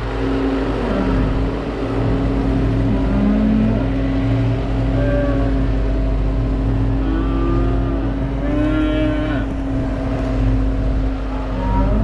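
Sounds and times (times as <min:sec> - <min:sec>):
steady engine drone: 0:00.0 - 0:12.0
cattle mooing: 0:07.0 - 0:09.6, 0:11.3 - 0:12.0.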